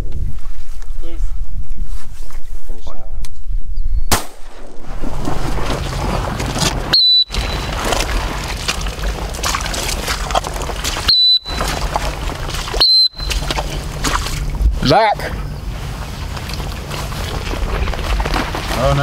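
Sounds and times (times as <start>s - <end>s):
rush of outdoor noise: 4.1s - 19.0s
dog whistle toots: 6.9s - 7.8s, 11.1s - 11.6s, 12.8s - 13.4s.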